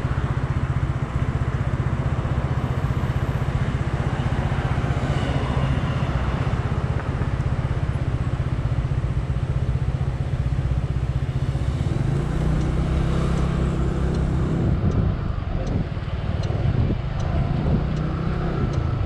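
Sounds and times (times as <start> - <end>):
scooter engine: 0.0 - 19.0
faint regular ticking: 11.6 - 19.0.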